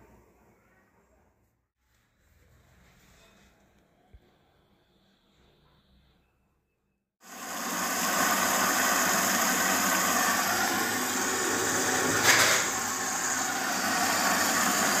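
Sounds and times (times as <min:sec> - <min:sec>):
water rushing into washing machine: 0:07.2 - 0:15.0.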